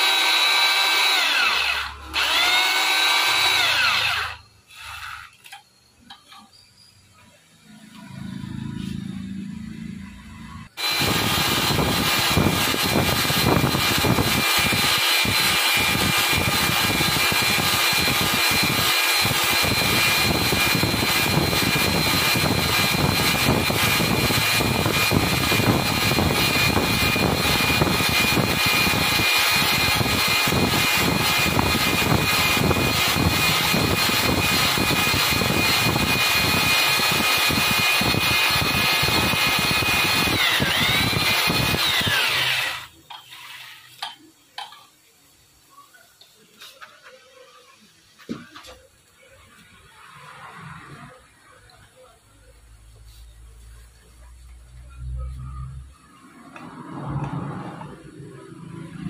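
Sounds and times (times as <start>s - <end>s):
boring machine whining: 0.0s - 6.7s, 7.6s - 44.1s.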